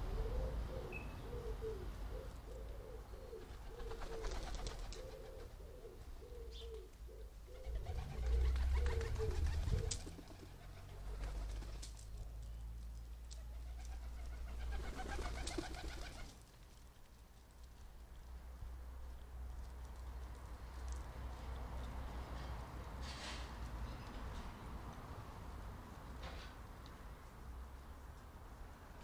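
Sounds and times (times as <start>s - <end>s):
pigeon cooing: 0.0s - 11.7s.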